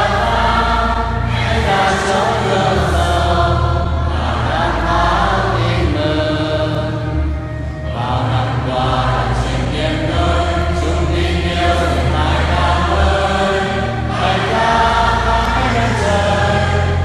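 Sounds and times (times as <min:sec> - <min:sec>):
choir singing a hymn: 0:00.0 - 0:17.0
low accompaniment: 0:00.0 - 0:17.0.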